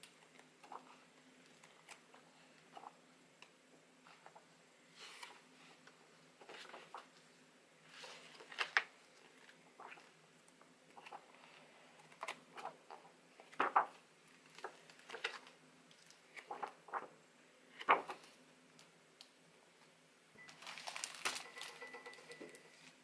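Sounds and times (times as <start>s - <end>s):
book pages turning: 0.2s - 3.0s, 4.1s - 7.2s, 7.9s - 10.2s, 10.9s - 17.1s, 17.7s - 18.4s, 20.6s - 22.2s.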